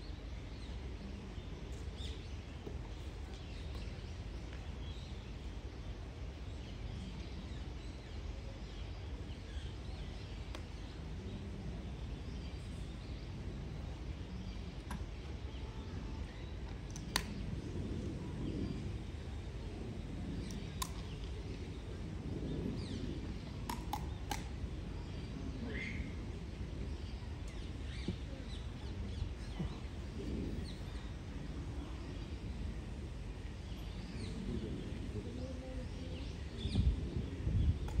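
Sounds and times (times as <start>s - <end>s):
low outdoor rumble: 0.0s - 38.0s
sparrows chirping: 0.0s - 38.0s
sharp clicks: 16.9s - 17.4s.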